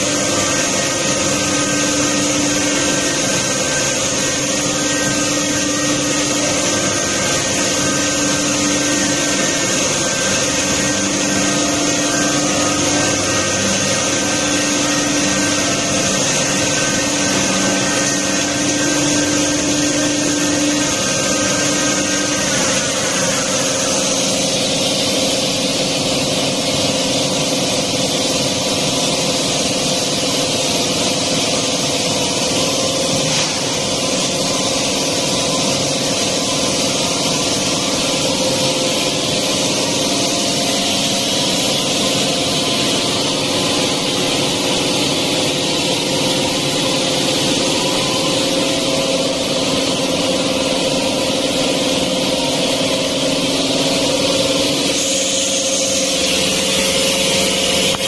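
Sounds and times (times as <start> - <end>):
pipe threading machine humming: 0.0 - 58.0.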